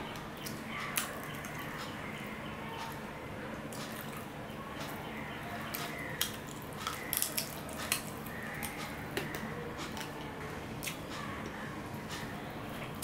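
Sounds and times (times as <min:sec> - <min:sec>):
steady background hum: 0:00.0 - 0:13.0
person chewing and lip-smacking: 0:05.7 - 0:10.2.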